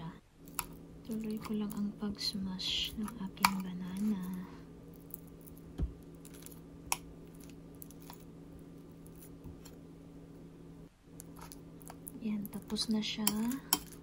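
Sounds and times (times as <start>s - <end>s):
steady low hum: 0.0s - 14.0s
spoon mashing bananas in a bowl: 0.4s - 8.3s, 11.2s - 14.0s
spoon clicking on bowl: 12.6s - 14.0s.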